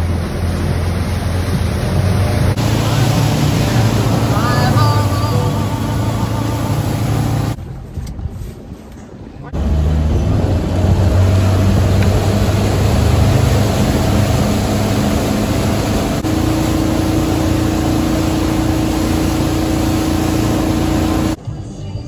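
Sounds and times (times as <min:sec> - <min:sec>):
boat engine droning: 0:00.0 - 0:07.6, 0:09.5 - 0:21.4
churning wake rushing: 0:00.0 - 0:07.6, 0:09.6 - 0:21.4
steady higher hum: 0:00.0 - 0:07.6, 0:09.6 - 0:21.4.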